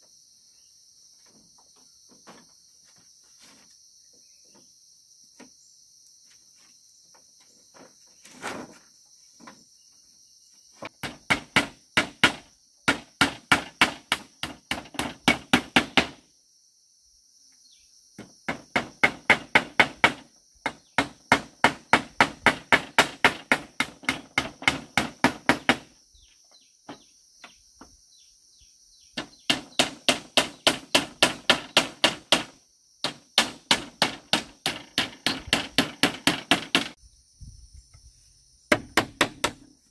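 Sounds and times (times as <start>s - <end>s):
insects buzzing: 0.0s - 39.9s
tool striking bamboo: 11.0s - 16.2s, 18.2s - 25.9s, 29.2s - 37.0s, 38.7s - 39.7s.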